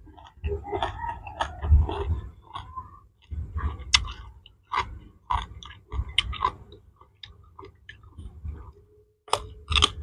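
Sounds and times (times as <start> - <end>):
crunchy chewing: 0.0 - 10.0.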